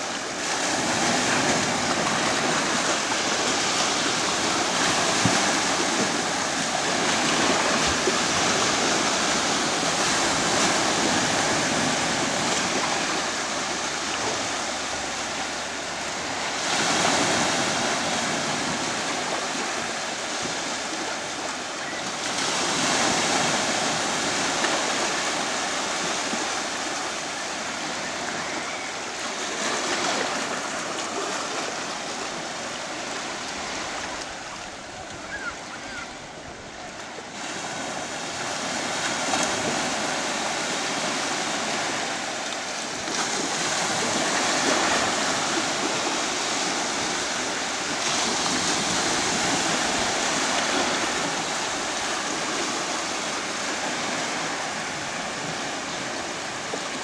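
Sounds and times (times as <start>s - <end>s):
surf washing up beach: 0.0s - 57.0s.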